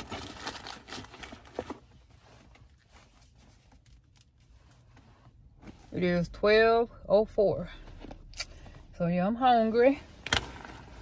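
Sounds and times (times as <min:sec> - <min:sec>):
rustling and handling noises: 0:00.0 - 0:06.2, 0:09.5 - 0:11.0.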